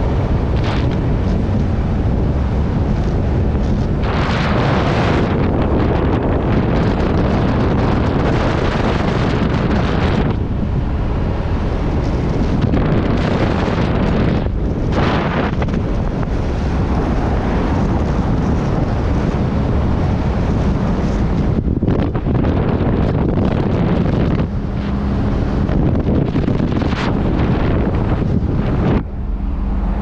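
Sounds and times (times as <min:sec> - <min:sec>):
road and engine rumble: 0:00.0 - 0:30.0
wind buffeting microphone: 0:00.0 - 0:30.0.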